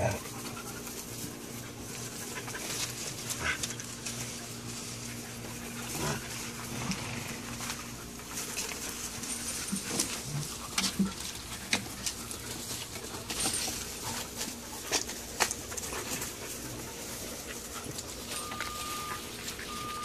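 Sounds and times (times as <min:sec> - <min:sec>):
low steady hum: 0:00.0 - 0:20.0
paws scuffling on dry grass: 0:00.0 - 0:20.0
puppies whimpering: 0:18.0 - 0:20.0.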